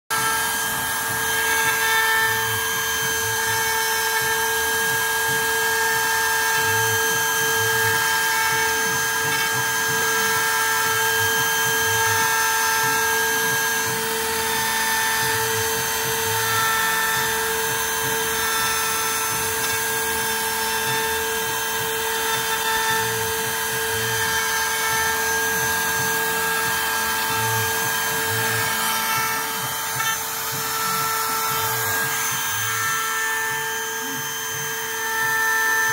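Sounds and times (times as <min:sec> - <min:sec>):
low rumble of bit cutting wood: 0:00.1 - 0:35.9
router spindle high whine: 0:00.1 - 0:35.9.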